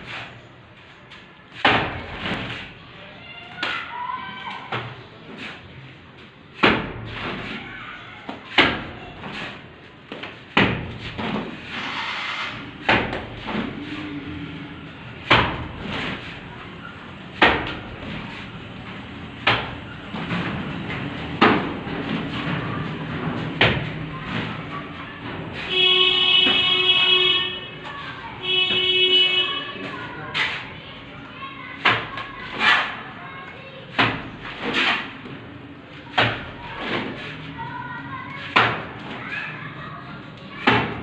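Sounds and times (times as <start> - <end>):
shovel scraping on concrete: 0.0 - 0.4, 30.3 - 30.8, 32.4 - 33.1, 34.4 - 35.2.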